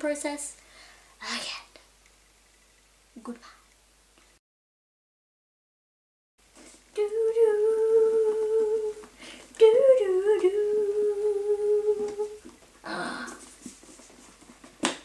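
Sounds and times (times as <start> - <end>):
woman humming: 7.0 - 13.4.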